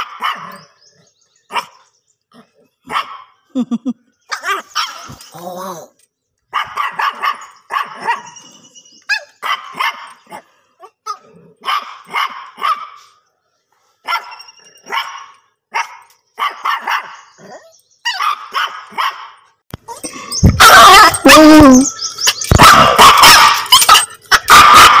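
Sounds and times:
dog barking: 0.0s - 0.6s, 1.5s - 1.7s, 2.9s - 3.3s, 6.5s - 8.4s, 9.1s - 10.4s, 11.6s - 13.0s, 14.0s - 19.4s, 20.6s - 21.4s, 22.5s - 25.0s.

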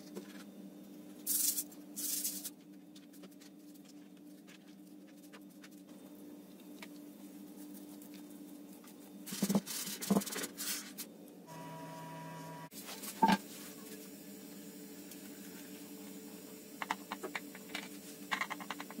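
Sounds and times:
steady hum: 11.0s - 19.0s.

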